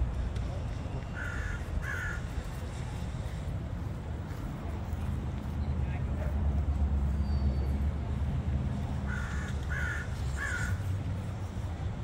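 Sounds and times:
crow cawing: 1.2 - 2.3, 9.1 - 10.9.

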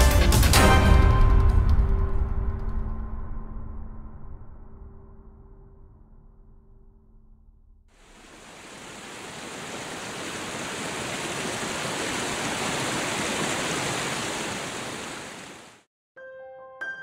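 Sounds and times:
river water rushing over rocks: 8.0 - 15.8.

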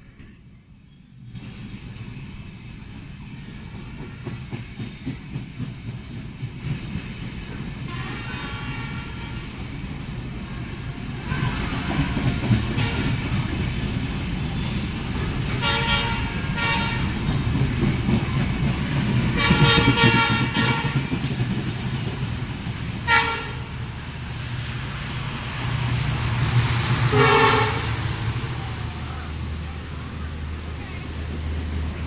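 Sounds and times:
train coaches rumbling past: 0.0 - 32.0
train horn toots: 7.8 - 9.6, 12.7 - 13.2, 15.6 - 17.2, 19.4 - 21.1, 23.0 - 23.7, 27.1 - 28.0.

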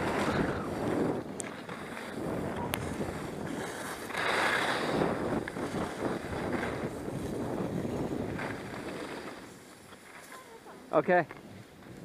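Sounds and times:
wind rushing over microphone: 0.0 - 9.6
skis scraping over snow: 0.0 - 12.0.

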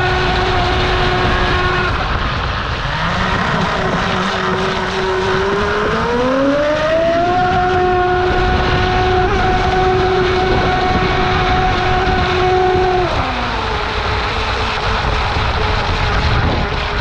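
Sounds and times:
electric motor whining: 0.0 - 17.0.

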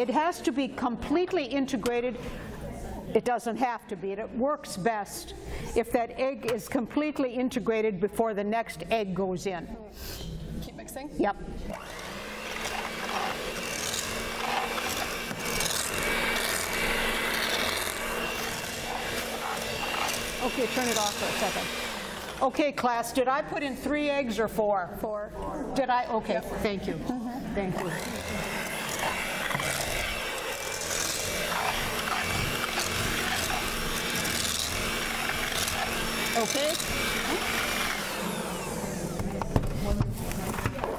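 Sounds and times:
electric hand mixer motor hum: 11.7 - 22.4, 27.7 - 39.5
beaters working through dough: 11.7 - 22.6, 27.6 - 40.9.

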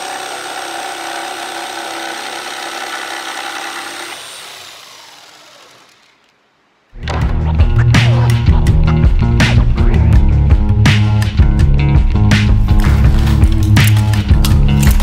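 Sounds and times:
jigsaw cutting plywood: 0.0 - 6.4
loud music: 7.0 - 15.0.

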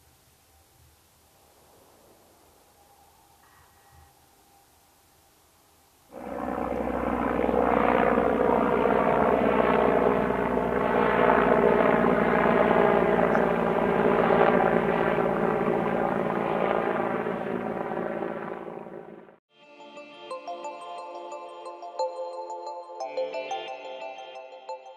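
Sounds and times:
helicopter rotor and engines droning: 6.1 - 19.4.

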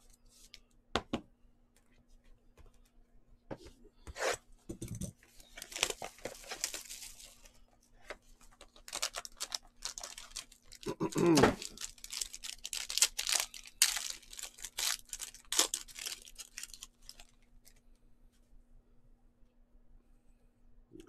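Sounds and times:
packaging tearing and crinkling: 5.5 - 7.5, 8.5 - 17.8.

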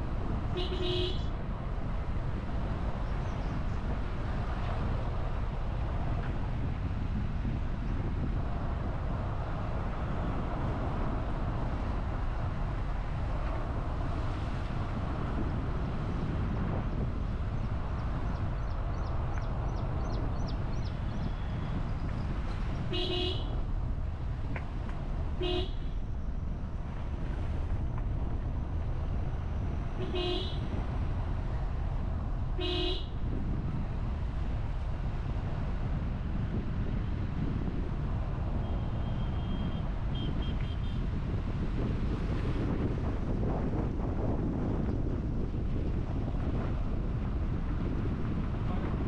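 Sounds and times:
car road rumble: 0.0 - 49.0
vehicle horn toots: 0.5 - 1.3, 22.9 - 23.6, 25.4 - 26.0, 30.0 - 30.7, 32.6 - 33.2, 38.6 - 41.0.

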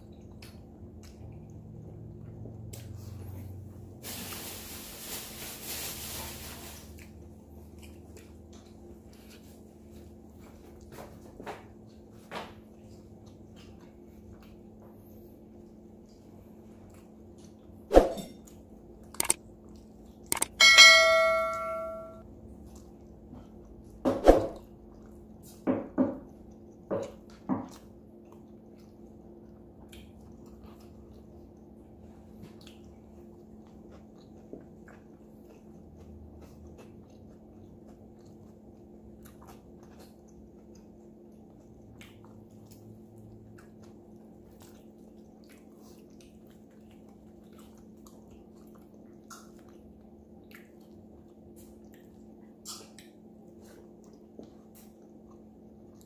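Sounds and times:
faint steady hum: 0.0 - 56.0
sharp clicks and knocks: 19.2 - 19.4, 20.3 - 20.8
bright ringing clink: 20.4 - 22.2.

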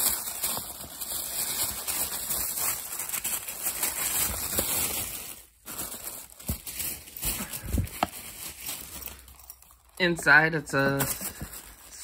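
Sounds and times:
packaging rustling and crackling: 0.0 - 12.0.

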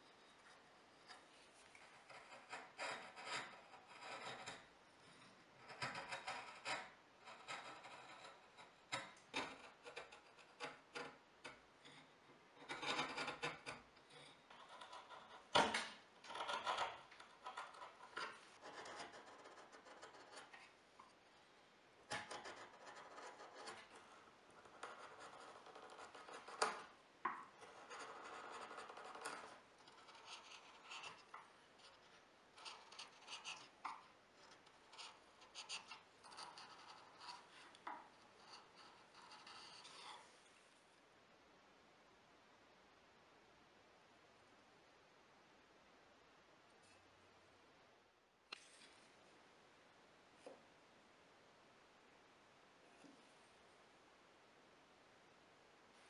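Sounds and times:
chisel scraping wood: 1.8 - 4.7, 5.6 - 11.0.

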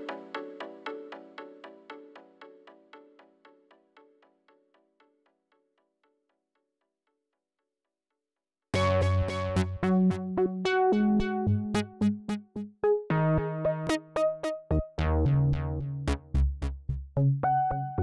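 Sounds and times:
instrumental background music: 8.8 - 18.0.

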